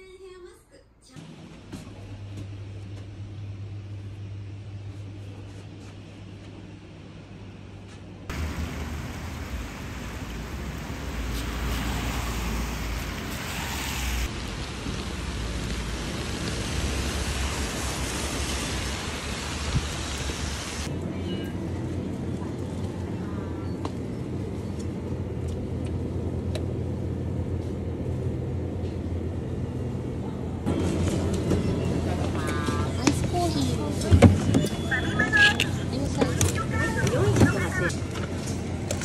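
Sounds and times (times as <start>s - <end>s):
rain splashing on asphalt: 8.3s - 20.9s.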